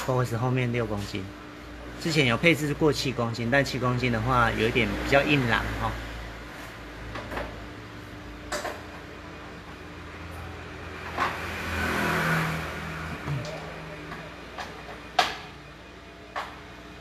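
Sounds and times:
sharp clicks and knocks: 13.2 - 15.5.

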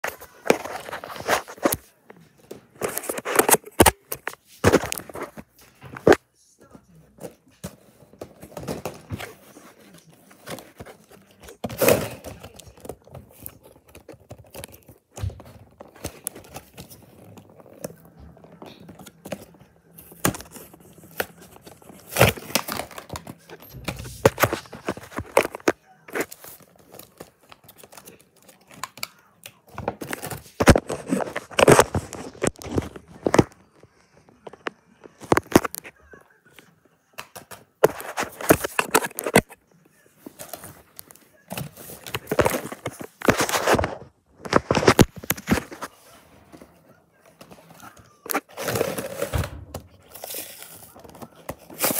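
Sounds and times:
plastic packaging crinkling and tearing: 10.4 - 35.9, 40.4 - 46.0, 47.4 - 51.9.

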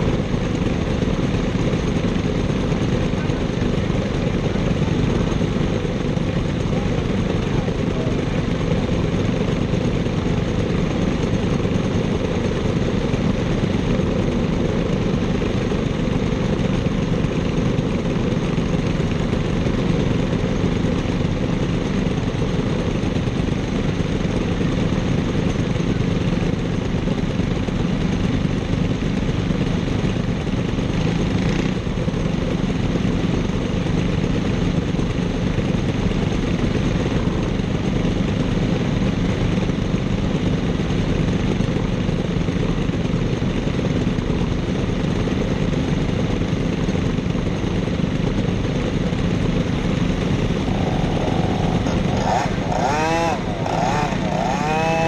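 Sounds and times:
kart engines idling: 0.0 - 55.0.

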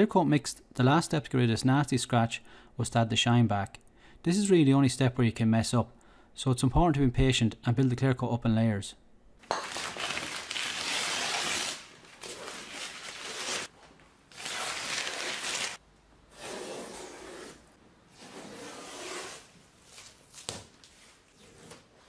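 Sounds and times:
paper crumpling and tearing: 9.6 - 13.7, 14.3 - 15.8
masking tape peeling: 9.8 - 13.7, 14.3 - 15.8.

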